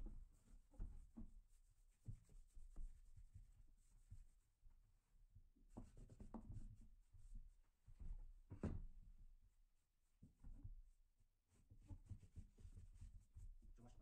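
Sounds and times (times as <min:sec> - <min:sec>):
soft knocks on wood: 0:08.0 - 0:09.0.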